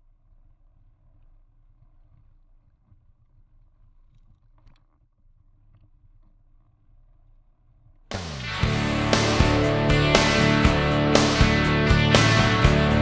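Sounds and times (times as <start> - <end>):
light clicks and rattles: 1.2 - 6.7.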